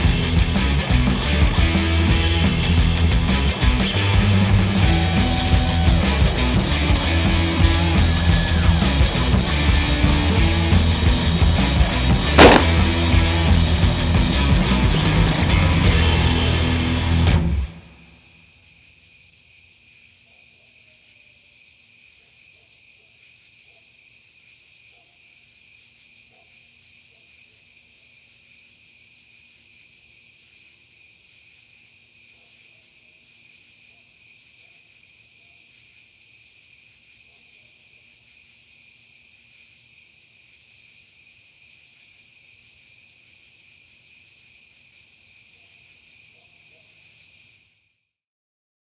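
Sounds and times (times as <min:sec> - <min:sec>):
crickets chirping: 0:17.9 - 0:48.1.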